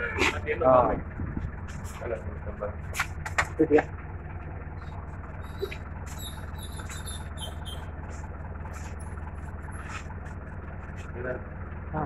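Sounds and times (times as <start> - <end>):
low motor hum: 0.0 - 12.0
high-pitched chirps and squeaks: 4.8 - 7.9.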